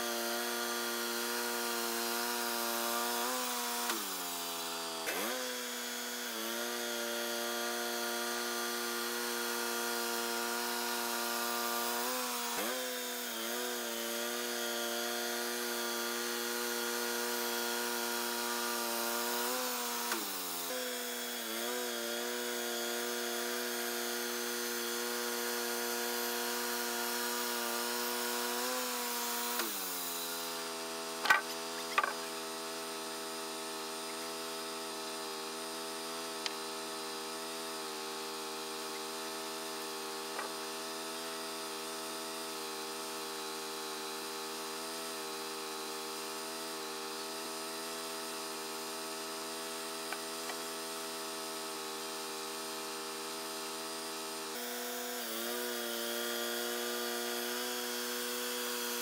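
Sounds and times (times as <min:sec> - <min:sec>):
band sawmill engine running: 0:29.5 - 0:32.6.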